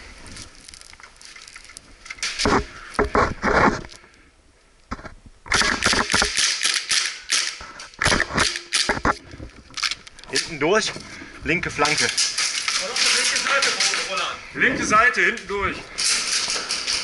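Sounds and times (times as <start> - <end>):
airsoft gun shots: 5.5 - 9.1.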